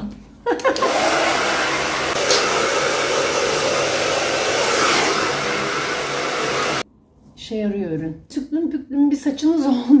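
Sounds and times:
hair dryer blowing: 0:00.6 - 0:06.8.

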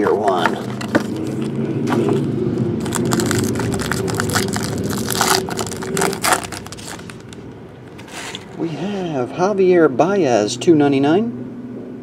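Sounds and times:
steady hum: 0:00.0 - 0:12.0
foil wrapper crinkling and tearing: 0:02.8 - 0:08.6.

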